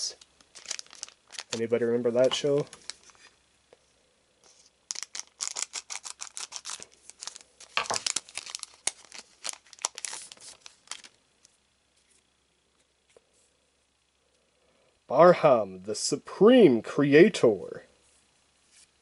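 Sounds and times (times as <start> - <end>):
foil wrapper tearing and crinkling: 0.4 - 3.3, 4.9 - 11.2.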